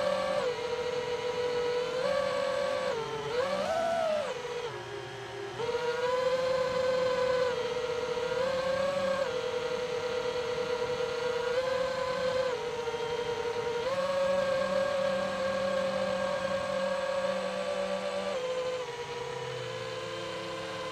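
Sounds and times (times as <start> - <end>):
electric motor and propeller whining: 0.0 - 20.9.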